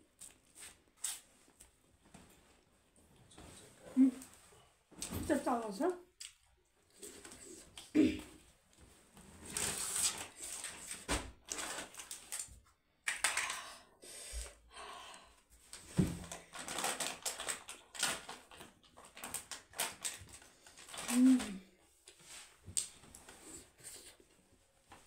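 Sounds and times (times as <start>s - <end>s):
wet mouth clicks and smacks: 6.2s - 6.5s
person chewing food: 6.2s - 7.9s.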